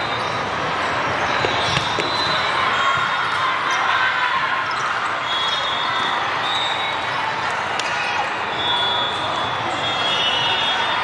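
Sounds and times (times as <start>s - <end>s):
hubbub of many voices: 0.0s - 11.0s
volleyballs struck and bouncing: 1.1s - 3.8s.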